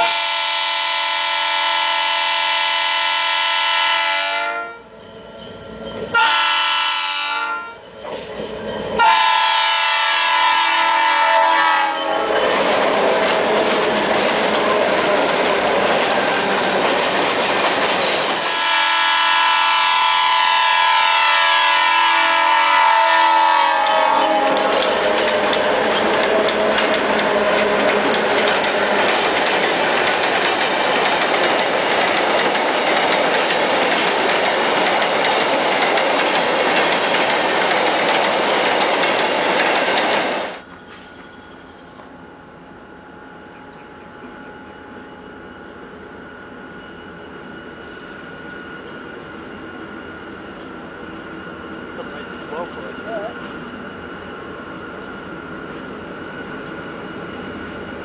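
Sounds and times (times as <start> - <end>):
locomotive air horn blasts: 0.0 - 4.9, 6.1 - 7.8, 9.0 - 12.4, 18.5 - 25.6
train rumbling and rattling past: 0.0 - 58.0.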